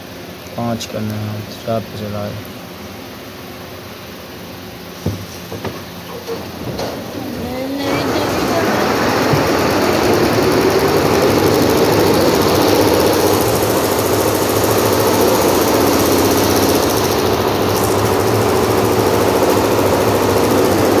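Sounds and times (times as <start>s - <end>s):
embroidery machine clattering: 5.8s - 21.0s.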